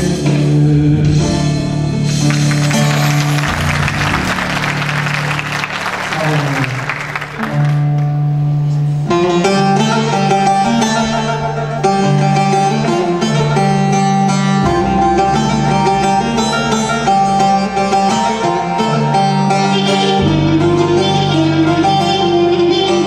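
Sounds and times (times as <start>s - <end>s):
deep bass line: 0.0s - 23.0s
plucked string instruments: 0.0s - 23.0s.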